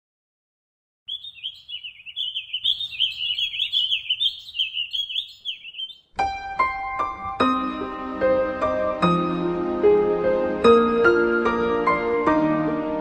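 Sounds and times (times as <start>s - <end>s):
small songbird twittering: 1.1s - 6.1s
slow piano notes: 6.2s - 13.0s.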